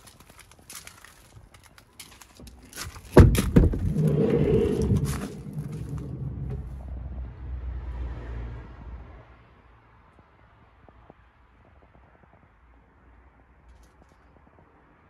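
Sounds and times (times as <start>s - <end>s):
sliding door rolling open: 3.2s - 6.9s
low rumble: 3.2s - 7.8s.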